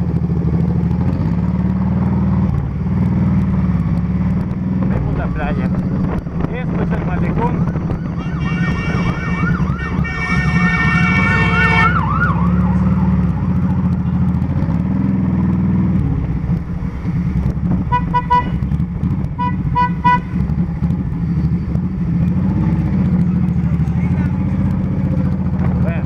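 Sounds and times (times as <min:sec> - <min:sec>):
motorcycle engine running: 0:00.0 - 0:26.0
siren yelping: 0:07.3 - 0:13.3.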